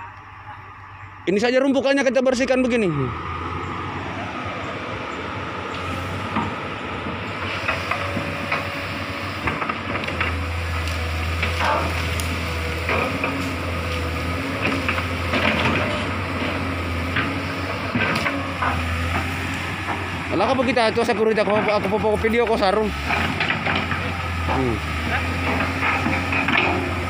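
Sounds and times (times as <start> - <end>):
excavator diesel engine droning: 0.0 - 27.0
wood cracking and snapping: 9.4 - 16.1.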